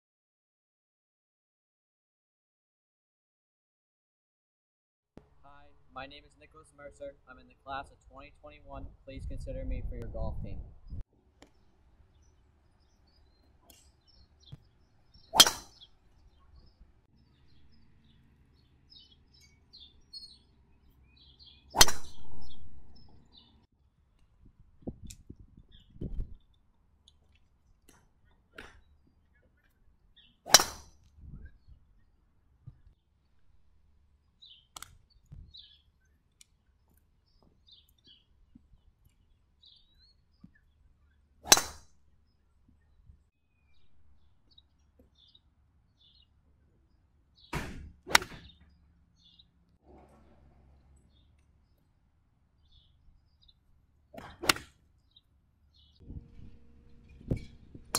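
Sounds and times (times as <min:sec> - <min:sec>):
birds chirping faintly: 0:05.4 - 0:23.7, 0:31.2 - 0:41.4, 0:42.0 - 0:57.9
golf club striking ball: 0:15.1 - 0:15.9, 0:21.8 - 0:22.9, 0:30.5 - 0:30.9, 0:41.4 - 0:41.8, 0:47.6 - 0:48.5, 0:54.2 - 0:54.7.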